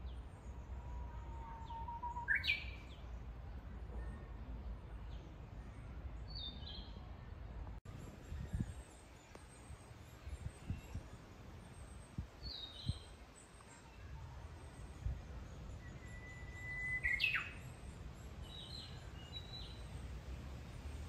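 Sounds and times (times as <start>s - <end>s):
bird song whistle: 1.4s - 3.1s, 15.7s - 17.8s, 18.4s - 19.9s.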